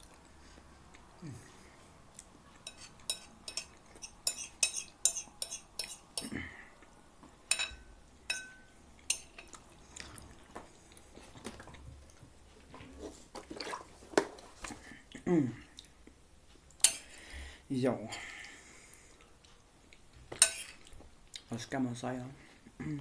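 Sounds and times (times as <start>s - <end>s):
fork clinking on a plate: 2.7s - 6.3s, 7.5s - 9.5s, 20.4s - 20.8s.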